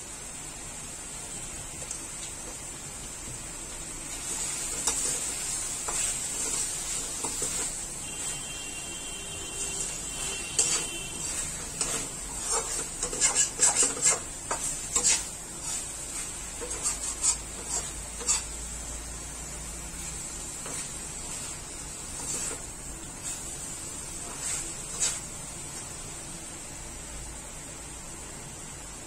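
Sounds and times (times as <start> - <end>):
frying sizzle: 0.0 - 29.0
spatula scraping a steel pan: 9.6 - 18.6, 24.3 - 25.3.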